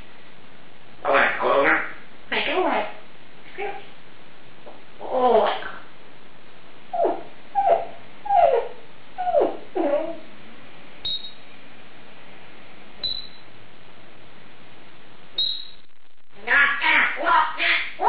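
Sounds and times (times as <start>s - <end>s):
parrot mimicking speech: 1.0s - 3.9s, 5.0s - 5.9s, 16.4s - 18.0s
parrot whistled beeps: 11.0s - 11.5s, 13.0s - 13.5s, 15.4s - 15.9s.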